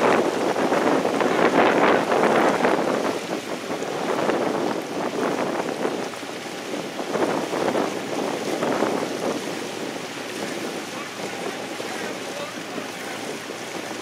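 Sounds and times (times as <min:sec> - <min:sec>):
hull running through choppy water: 0:00.0 - 0:14.0
wind buffeting microphone: 0:00.0 - 0:14.0
oar blades splashing: 0:07.9 - 0:14.0.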